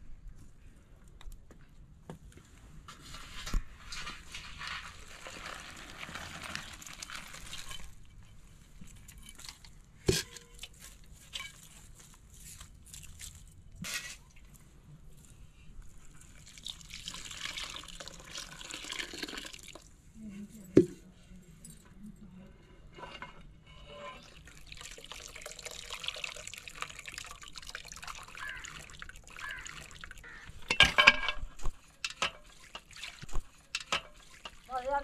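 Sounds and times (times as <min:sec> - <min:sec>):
water pouring and splashing: 0:03.9 - 0:13.6, 0:16.1 - 0:20.0, 0:24.2 - 0:35.0
metal pots clanking: 0:06.5 - 0:10.7, 0:11.3 - 0:11.8, 0:28.2 - 0:34.7.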